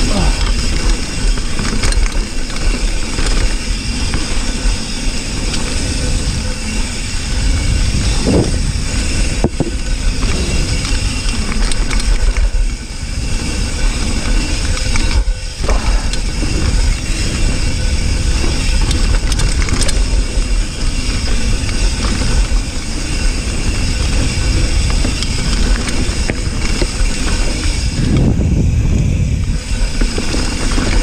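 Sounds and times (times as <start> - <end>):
bike tyres rumbling on dirt: 0.0 - 31.0
wind on microphone: 5.7 - 12.0, 12.8 - 31.0.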